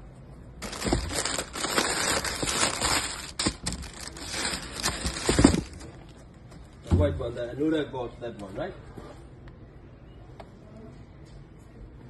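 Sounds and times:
tissue paper rustling: 0:00.6 - 0:05.8.

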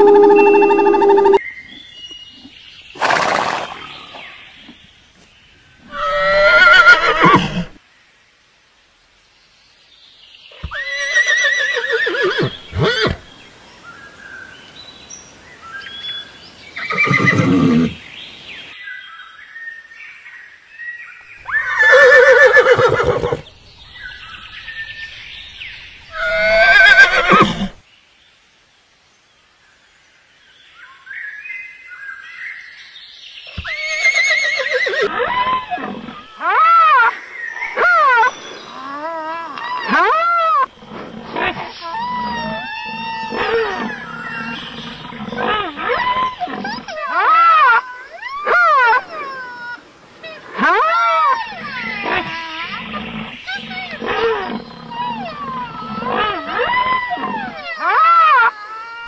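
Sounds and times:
horses neighing: 0:03.0 - 0:04.2, 0:05.9 - 0:07.8, 0:10.6 - 0:13.3, 0:16.8 - 0:18.0, 0:21.4 - 0:23.5, 0:26.1 - 0:27.8, 0:33.6 - 0:37.0.

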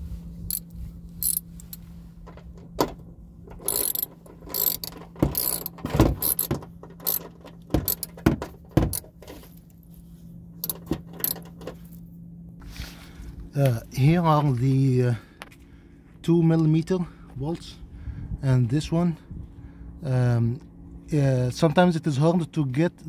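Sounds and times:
ratchet wrench clicking: 0:00.5 - 0:01.8, 0:03.5 - 0:08.2, 0:10.6 - 0:11.5.

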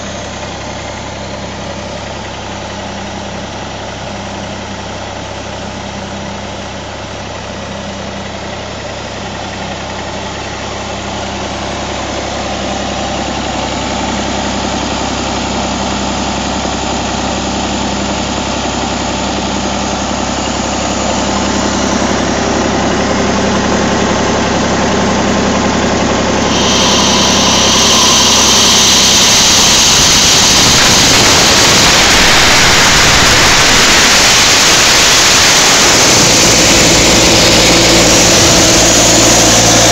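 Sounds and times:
diesel engine idling: 0:00.0 - 0:39.9
loud rushing hiss: 0:25.9 - 0:39.9.

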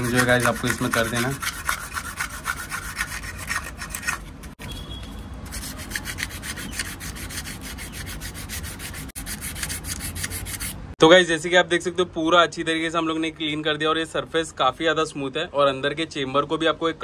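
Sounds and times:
sandpaper rubbing on metal: 0:00.0 - 0:04.5, 0:05.4 - 0:10.8.

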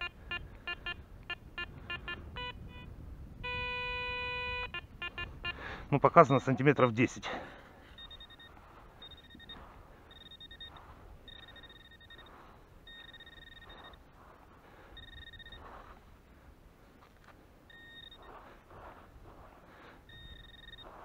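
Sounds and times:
metal detector high tone: 0:00.0 - 0:06.6, 0:07.9 - 0:14.0, 0:15.0 - 0:15.9, 0:17.7 - 0:18.4, 0:20.1 - 0:21.0.

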